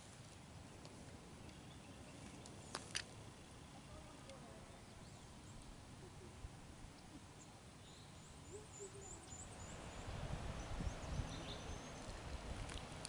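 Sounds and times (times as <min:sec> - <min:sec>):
low bird call: 0:04.6 - 0:12.2.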